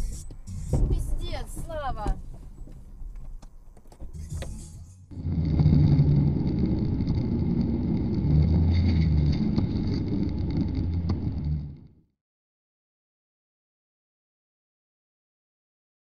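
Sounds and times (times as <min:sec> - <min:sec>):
vehicle engine and road rumble: 0:00.0 - 0:12.1.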